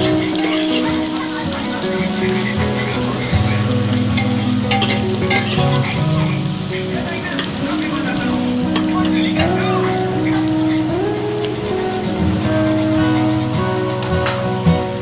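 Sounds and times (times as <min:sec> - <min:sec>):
background music: 0:00.0 - 0:15.0
onions sizzling in hot oil: 0:00.0 - 0:15.0
ladle scraping a pot: 0:03.6 - 0:06.4.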